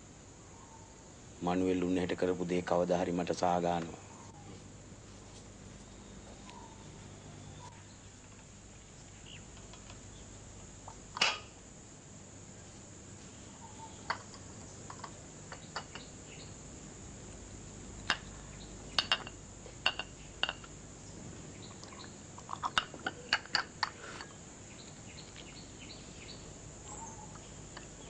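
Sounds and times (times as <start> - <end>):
steady high hiss: 0.0 - 28.0
cup clinking against saucer: 19.0 - 20.7.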